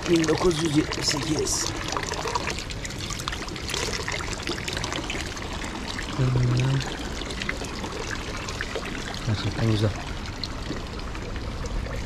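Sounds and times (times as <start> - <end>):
water running and splashing: 0.0 - 12.0.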